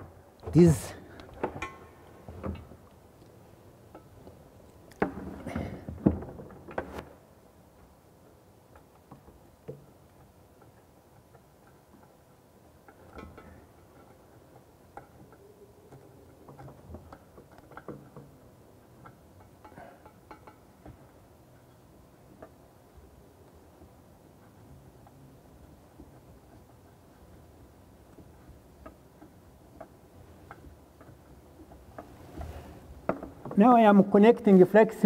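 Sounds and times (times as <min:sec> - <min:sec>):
plumbing parts clicking and knocking: 0:07.8 - 0:33.8.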